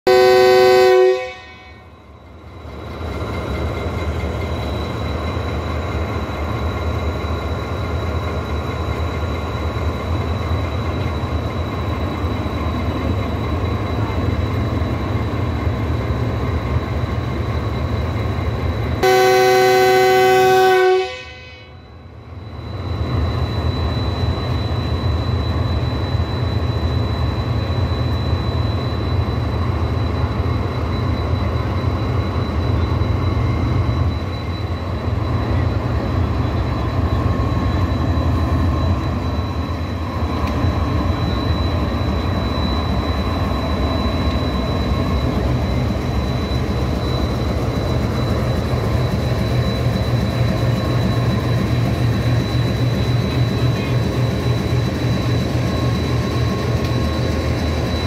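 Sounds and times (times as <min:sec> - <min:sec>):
locomotive horn: 0:00.1 - 0:01.9, 0:19.0 - 0:21.8.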